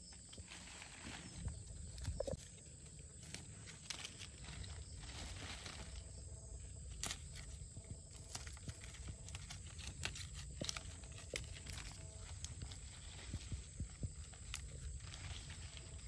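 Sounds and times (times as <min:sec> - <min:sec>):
low steady rumble: 0:00.0 - 0:16.0
leaves rustling: 0:00.3 - 0:16.0
stems snapping: 0:03.2 - 0:04.3, 0:06.9 - 0:13.5.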